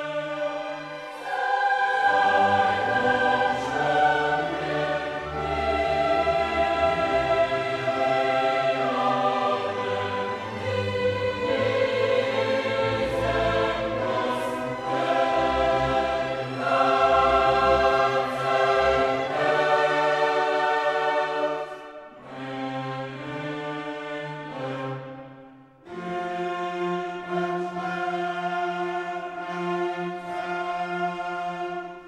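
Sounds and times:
orchestra playing: 0.0 - 25.2
choir singing held chords: 0.0 - 26.1.

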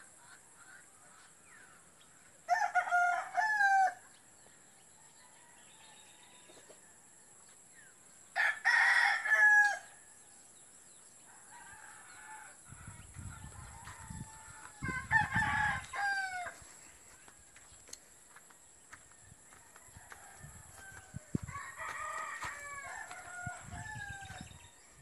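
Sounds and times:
rooster crowing: 2.5 - 4.0, 8.4 - 9.9, 11.5 - 16.6, 19.5 - 24.8.

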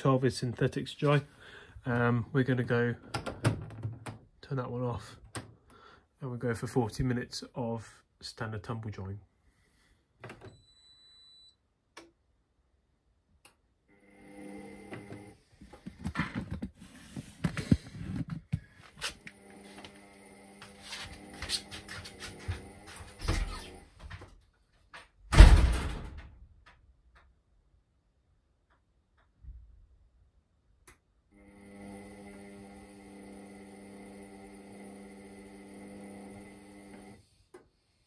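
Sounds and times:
washer dryer humming: 19.3 - 23.8
loud thump: 25.3 - 26.3.

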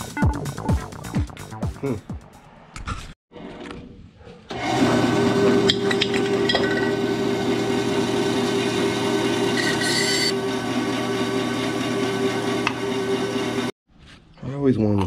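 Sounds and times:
bandsaw motor and blade humming: 4.5 - 13.7
saw blade cutting metal can: 4.7 - 13.3
high-pitched scrape: 9.6 - 10.4.

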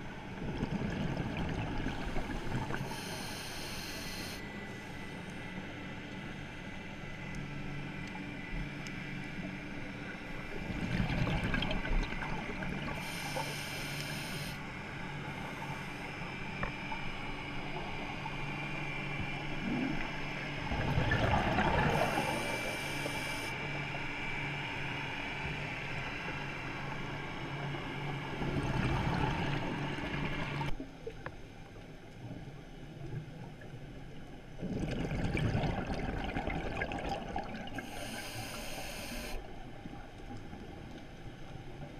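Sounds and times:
low hum: 0.0 - 41.9
exhaled bubbles underwater: 0.3 - 4.1, 10.2 - 13.7, 19.4 - 23.4, 28.3 - 31.2, 34.5 - 40.8
regulator inhale hiss: 2.7 - 5.0, 13.0 - 14.7, 21.9 - 23.6, 37.8 - 39.4.

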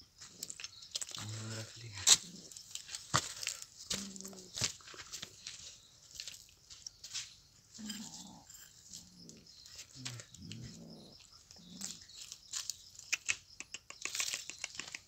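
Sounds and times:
scratchy clicks on dry dirt: 0.2 - 15.0
cat growling low: 7.8 - 9.2, 10.2 - 12.0.

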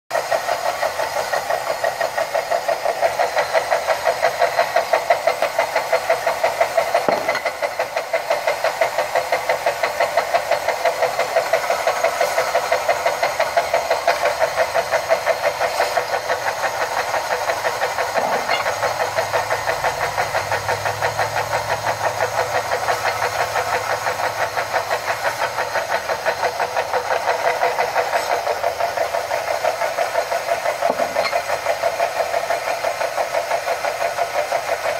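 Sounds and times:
belt sanders grinding glass: 18.1 - 19.0, 30.8 - 31.6.

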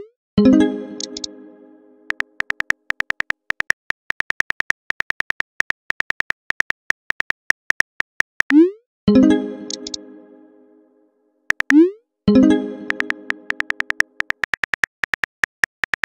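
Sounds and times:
phone keyboard clicks: 1.0 - 1.3, 2.1 - 8.6, 9.7 - 10.0, 11.5 - 11.8, 12.9 - 16.0.

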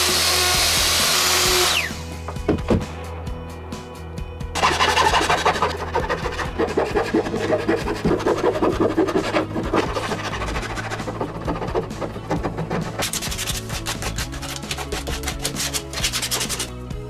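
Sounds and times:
wood scraped by hand: 4.6 - 16.8.

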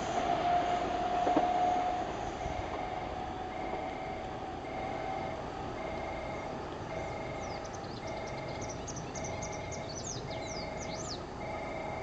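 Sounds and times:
two-tone electronic warning bell: 1.3 - 12.0
small birds chirping: 7.4 - 11.3.

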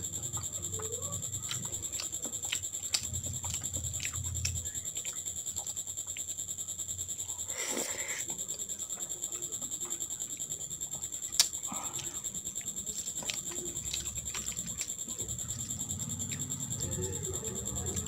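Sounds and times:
fingers mixing food on plate: 0.0 - 6.4, 11.2 - 18.0
chewing and wet mouth noises: 0.0 - 18.0
steady high-pitched whine: 0.0 - 18.0.

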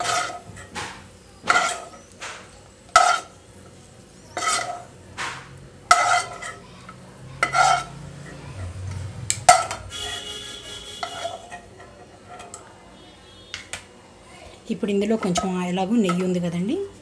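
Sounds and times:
spoon scraping a pan: 0.0 - 0.8, 1.5 - 6.7, 7.4 - 8.7, 9.4 - 12.7.

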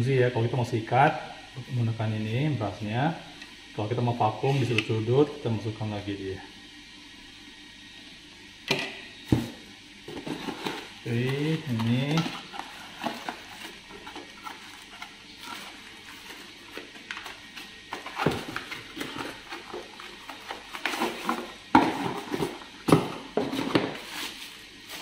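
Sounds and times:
cardboard and plastic rustling: 9.3 - 25.0.

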